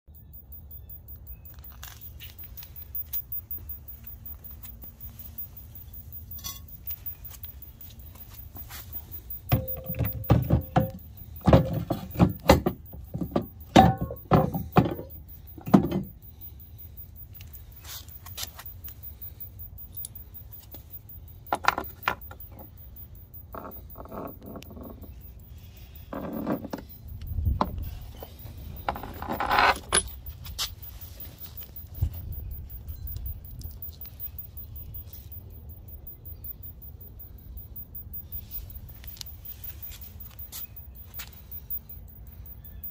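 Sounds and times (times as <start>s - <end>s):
metal tools clinking and clattering: 6.3s - 7.0s, 28.8s - 30.3s.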